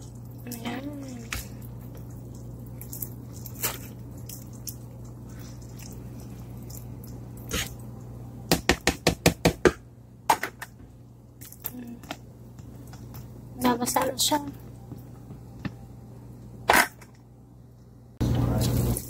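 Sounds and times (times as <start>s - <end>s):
broth simmering with pops: 0.0s - 8.2s
steady low hum: 0.0s - 19.0s.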